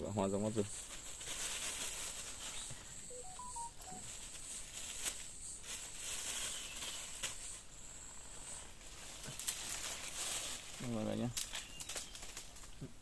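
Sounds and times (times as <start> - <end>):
insects buzzing: 0.0 - 10.2
short electronic beeps: 3.1 - 4.0.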